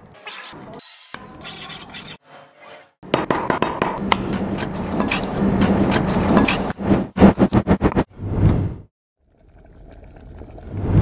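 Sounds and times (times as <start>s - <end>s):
knife scraping fish scales: 4.2s - 6.8s.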